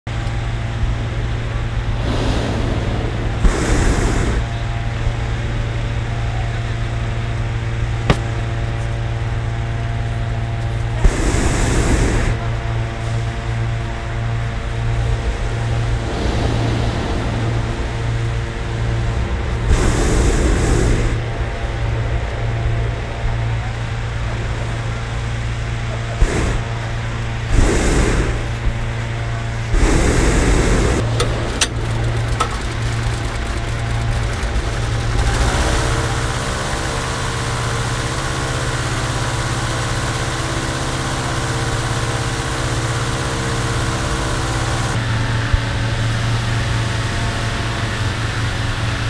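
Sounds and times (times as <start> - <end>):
inflator fan engine hum: 0.1 - 49.0
propane burner blasts: 0.1 - 49.0
short rushing bursts: 1.9 - 4.8, 11.0 - 12.4, 15.7 - 21.4, 26.1 - 40.0
sharp knock: 8.1 - 8.4.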